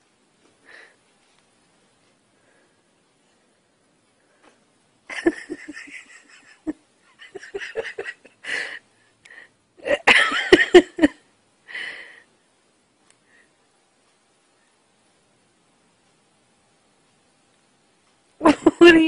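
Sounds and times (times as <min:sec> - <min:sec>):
person laughing: 0:05.1 - 0:08.4, 0:09.8 - 0:11.2, 0:18.4 - 0:19.0.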